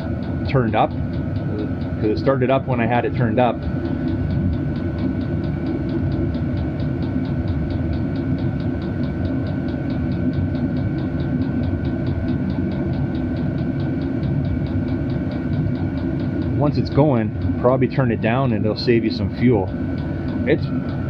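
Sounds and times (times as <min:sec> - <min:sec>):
air heater rumble and whine: 0:00.0 - 0:21.0
fuel pump ticking: 0:00.0 - 0:21.0.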